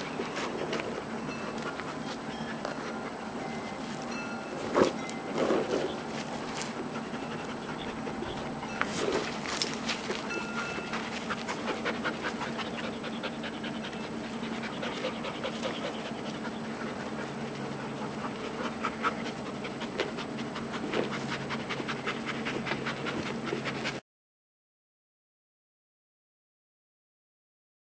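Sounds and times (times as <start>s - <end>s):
puppies panting: 0.0s - 24.0s.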